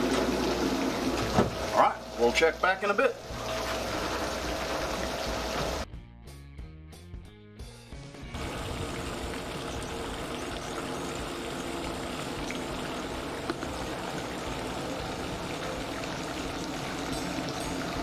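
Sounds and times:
fountain water splashing: 0:08.4 - 0:18.0.

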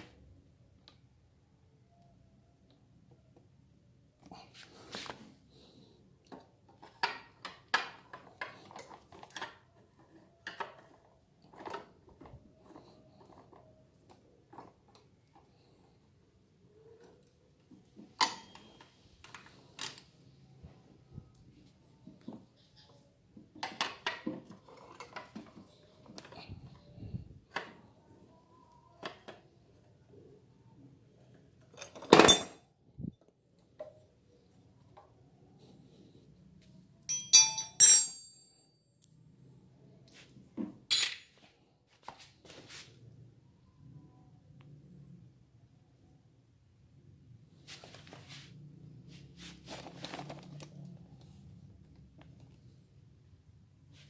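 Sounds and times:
allen key clinking on metal: 0:37.1 - 0:38.6, 0:40.9 - 0:41.4.

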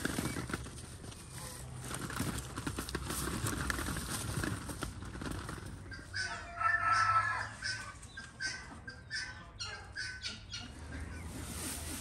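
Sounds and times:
hen clucking: 0:05.7 - 0:12.0.

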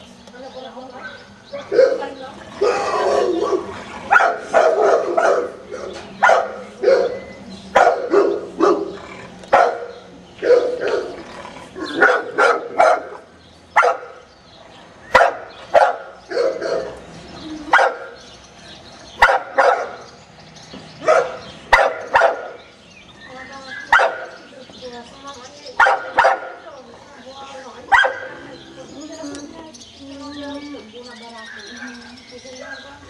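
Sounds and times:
dogs barking: 0:01.0 - 0:14.3, 0:15.0 - 0:17.1, 0:17.7 - 0:18.3, 0:19.1 - 0:20.2, 0:21.0 - 0:22.7, 0:23.6 - 0:24.5, 0:25.7 - 0:26.7, 0:27.8 - 0:28.6, 0:31.5 - 0:33.0.

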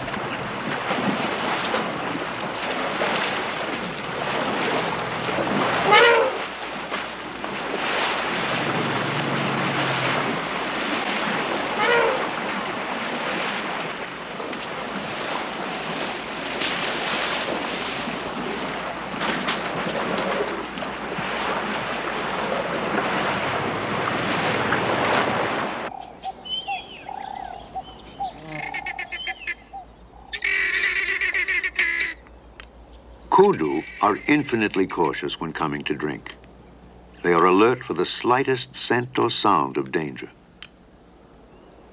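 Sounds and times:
water splashing: 0:00.0 - 0:29.7
elephant call: 0:05.8 - 0:06.5, 0:11.7 - 0:12.4, 0:25.9 - 0:32.2, 0:33.4 - 0:35.2
bird calls: 0:25.9 - 0:37.6, 0:40.3 - 0:41.9
birds chirping: 0:25.9 - 0:41.9.

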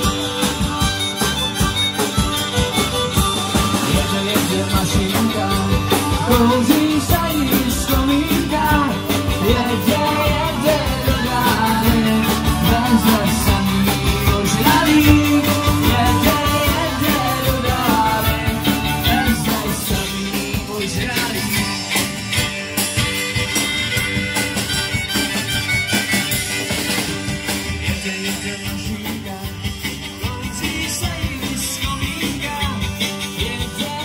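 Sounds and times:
guitar: 0:00.0 - 0:34.0
upbeat band music: 0:00.0 - 0:34.0
person singing: 0:03.4 - 0:22.1, 0:27.7 - 0:34.0.

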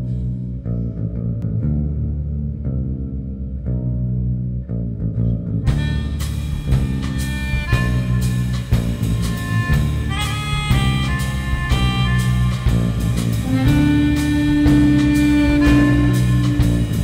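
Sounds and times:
plucked bass line: 0:00.0 - 0:17.0
jazzy band music with drums: 0:05.7 - 0:17.0.

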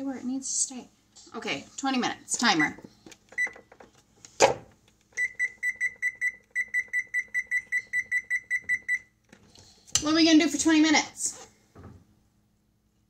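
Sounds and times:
electronic timer beeping: 0:05.2 - 0:09.1.

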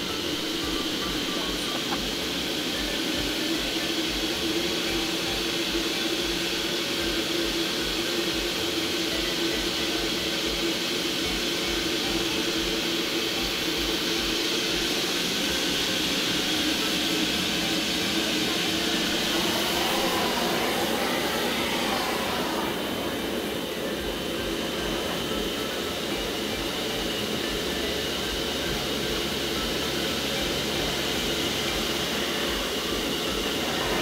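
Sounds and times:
vacuum sucking sand: 0:13.7 - 0:25.7.

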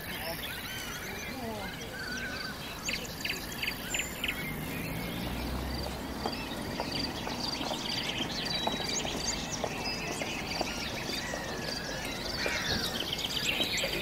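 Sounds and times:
birds chirping and trilling: 0:00.0 - 0:14.0.

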